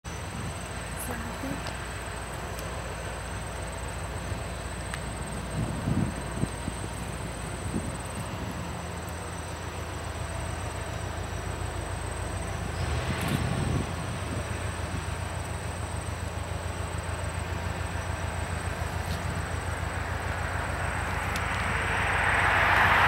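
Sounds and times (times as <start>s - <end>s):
diesel locomotives engine drone: 0.0s - 23.0s
loud rushing: 20.5s - 23.0s.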